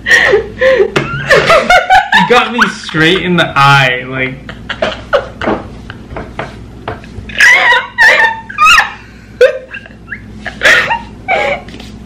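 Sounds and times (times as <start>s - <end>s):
woman shrieking with laughter: 7.3s - 11.8s.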